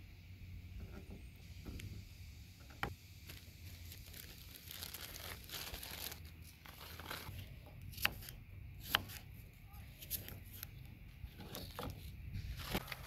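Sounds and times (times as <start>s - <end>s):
plastic bags crinkling: 3.3s - 7.3s.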